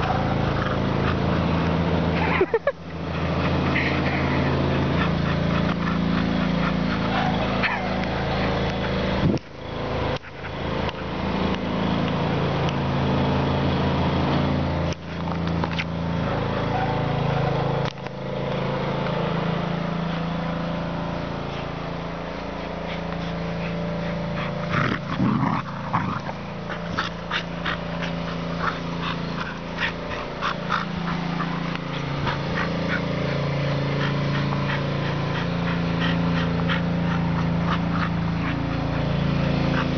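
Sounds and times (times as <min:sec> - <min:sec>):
dog growling: 0:22.6 - 0:39.9.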